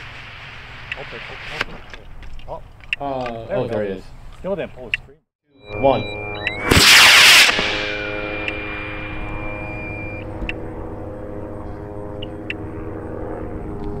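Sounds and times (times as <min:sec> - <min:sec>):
steady tonal hum: 0:05.6 - 0:14.0
rocket motor roar: 0:06.6 - 0:14.0.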